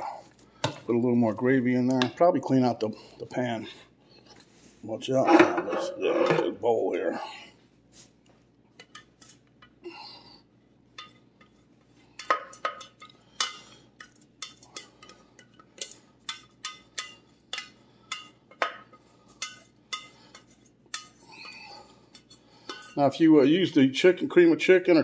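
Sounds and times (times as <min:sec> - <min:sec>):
metal ladle scraping pot: 0:05.2 - 0:06.7, 0:12.2 - 0:23.0.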